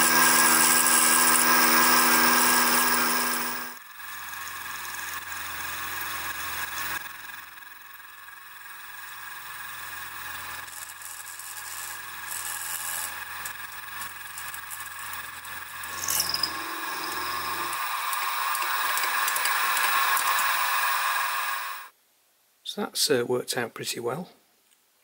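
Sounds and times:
cutter squeal: 0:00.0 - 0:03.8, 0:09.8 - 0:21.7
cutter rasping through metal: 0:00.0 - 0:07.7, 0:08.4 - 0:21.1
mill motor whine: 0:00.0 - 0:21.9.

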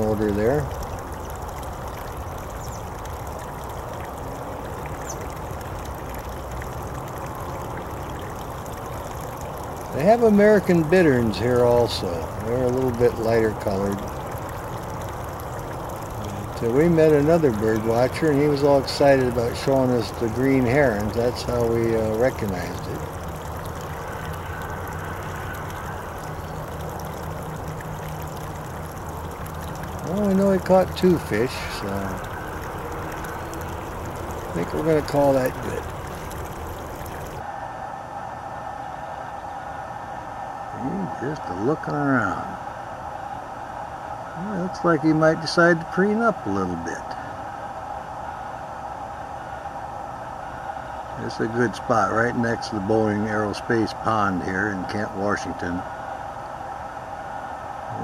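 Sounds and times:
low outdoor rumble: 0:00.0 - 0:38.2.

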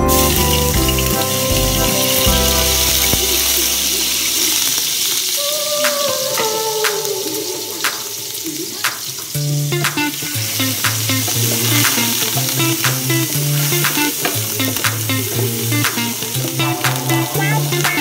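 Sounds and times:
music with repeating bass line: 0:00.0 - 0:04.4, 0:10.7 - 0:18.0
food sizzling in hot oil: 0:00.0 - 0:06.6, 0:07.2 - 0:18.0.

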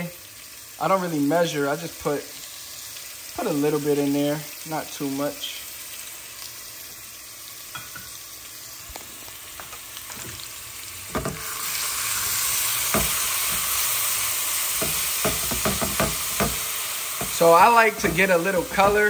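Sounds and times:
sauce sizzling in oil: 0:00.0 - 0:19.0
spatula scraping pot: 0:14.8 - 0:19.0.

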